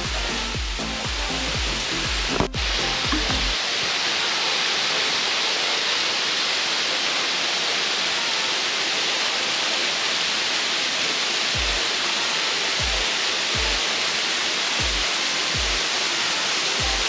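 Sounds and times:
waterfall splashing onto rocks: 0:00.2 - 0:17.0
low thumps: 0:02.2 - 0:03.6.

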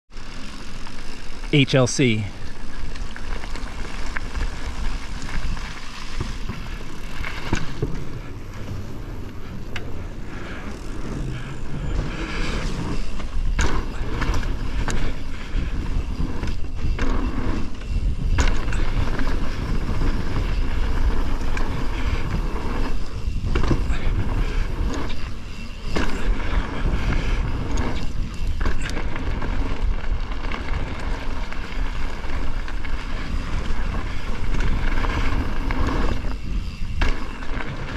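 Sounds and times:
bike knocking and rattling: 0:00.1 - 0:01.5, 0:02.4 - 0:37.9
tyres rolling over gravel: 0:00.1 - 0:01.5, 0:02.1 - 0:37.9.

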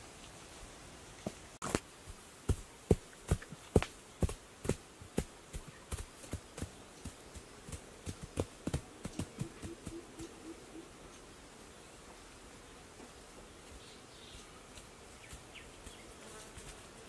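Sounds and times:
hands patting turf: 0:01.3 - 0:10.4.

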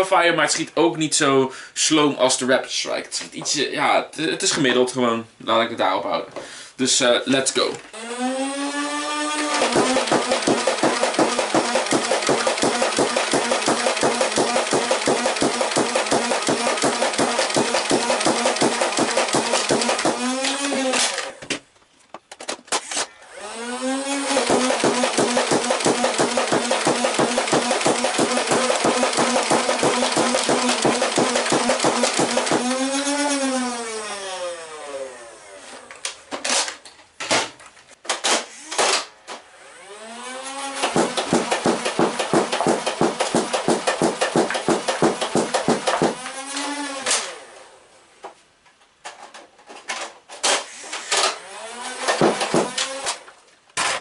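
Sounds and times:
toy blaster motors whirring: 0:08.0 - 0:21.4, 0:22.7 - 0:35.9, 0:38.4 - 0:41.6, 0:45.7 - 0:47.6, 0:50.5 - 0:53.3
darts firing rapidly: 0:09.5 - 0:20.4, 0:24.3 - 0:32.9, 0:40.8 - 0:46.3, 0:52.1 - 0:52.8.

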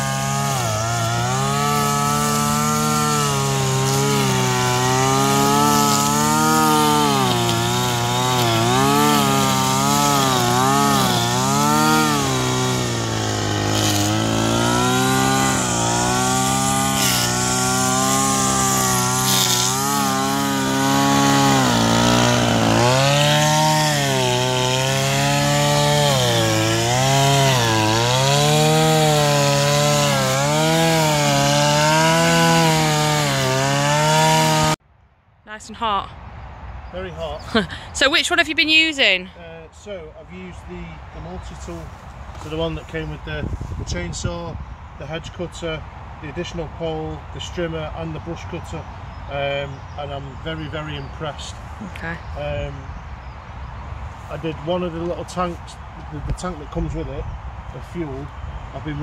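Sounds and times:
strimmer engine revving: 0:00.0 - 0:34.8.

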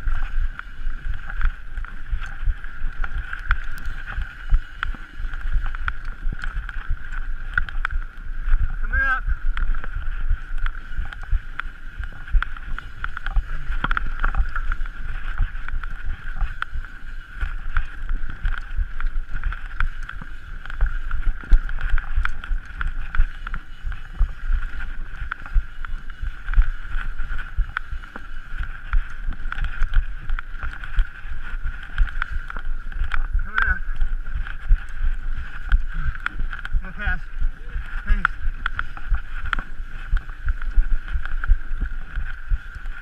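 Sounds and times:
bike buzz and rumble: 0:00.0 - 0:43.0
wind on microphone: 0:00.0 - 0:43.0.

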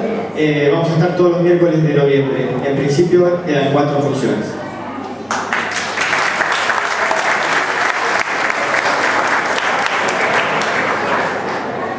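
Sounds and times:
audience applauding: 0:05.3 - 0:11.8.

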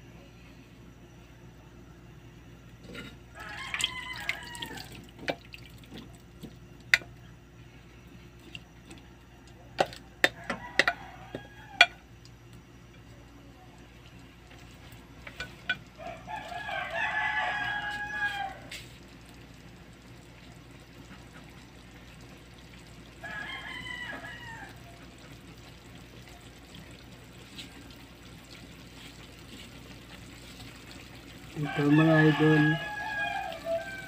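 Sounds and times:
rooster crowing: 0:03.3 - 0:05.0, 0:09.1 - 0:12.1, 0:16.0 - 0:18.8, 0:23.1 - 0:25.1, 0:31.5 - 0:34.0.

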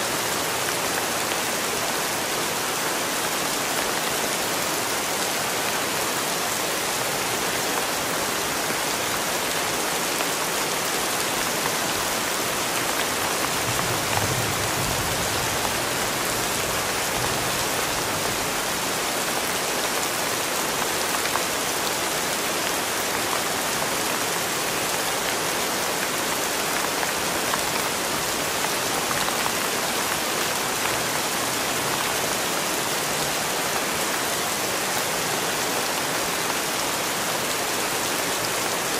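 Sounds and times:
rain on wet concrete: 0:00.0 - 0:38.9.

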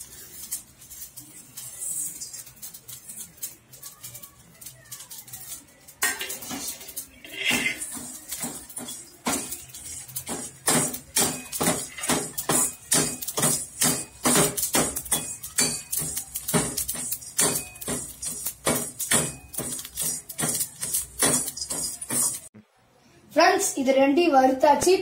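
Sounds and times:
steel ladle scraping a pan: 0:06.0 - 0:22.5.

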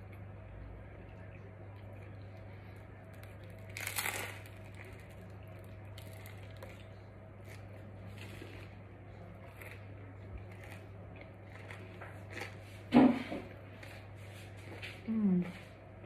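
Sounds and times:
steady low hum: 0:00.0 - 0:16.0
crunchy bite into pizza crust: 0:03.0 - 0:08.8
chewing crunches: 0:03.0 - 0:15.0.

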